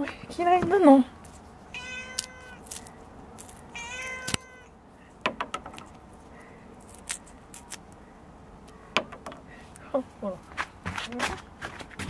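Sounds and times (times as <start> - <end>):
cat meowing: 1.7 - 2.6, 3.7 - 4.8.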